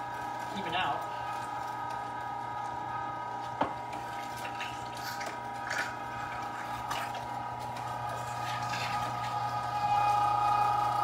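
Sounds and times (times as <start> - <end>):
electric meat grinder running: 0.0 - 11.0.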